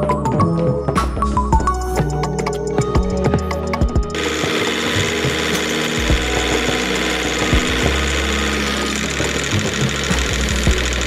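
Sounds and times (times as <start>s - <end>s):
background music: 0.0s - 11.0s
motor running: 4.1s - 11.0s.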